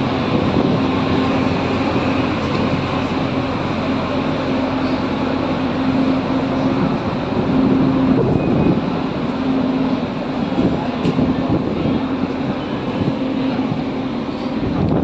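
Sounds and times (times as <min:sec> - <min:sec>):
wind buffeting microphone: 0:00.0 - 0:03.1, 0:10.0 - 0:15.0
ferry machinery drone: 0:00.0 - 0:15.0.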